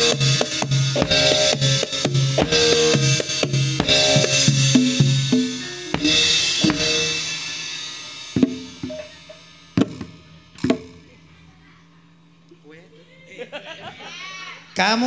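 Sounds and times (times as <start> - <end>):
cymbal crash: 0.0 - 11.2
gamelan ensemble playing: 0.0 - 11.2
drum strokes: 0.0 - 11.4.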